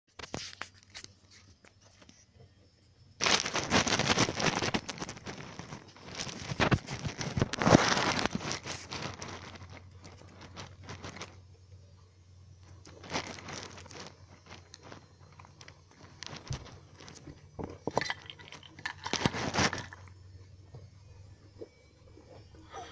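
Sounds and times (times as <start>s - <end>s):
cage bedding rustling: 3.2s - 11.4s, 12.9s - 17.3s.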